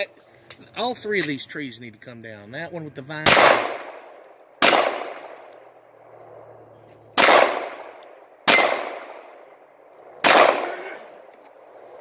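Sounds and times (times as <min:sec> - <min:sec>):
metallic ring of steel target: 0:04.6 - 0:05.3, 0:08.5 - 0:09.4
handgun shots with echo: 0:04.6 - 0:05.5, 0:07.2 - 0:09.2, 0:10.2 - 0:10.7.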